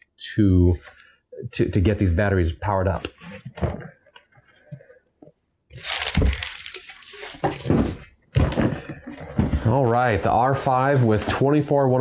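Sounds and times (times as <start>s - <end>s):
bubble wrap crinkling: 5.7s - 8.0s.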